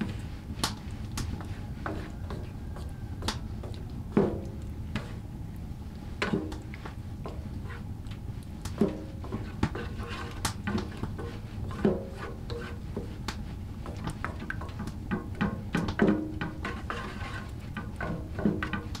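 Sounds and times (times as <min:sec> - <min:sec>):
spoon scraping frying pan: 0:01.3 - 0:05.2, 0:06.2 - 0:07.9, 0:08.8 - 0:13.2, 0:13.9 - 0:19.0.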